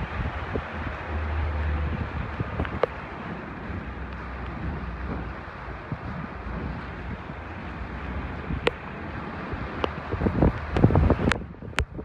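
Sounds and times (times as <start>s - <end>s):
car rumbling on wet street: 0.0s - 12.0s
wind noise on microphone: 0.0s - 12.0s.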